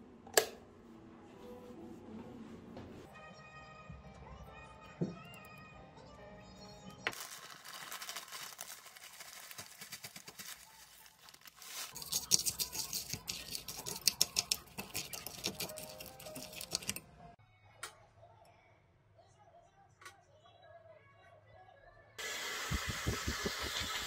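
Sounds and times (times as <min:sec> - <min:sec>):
granola pouring into bowl: 0:07.1 - 0:13.6
plastic bag crinkling: 0:07.1 - 0:14.0
metal spoon stirring: 0:07.8 - 0:17.1.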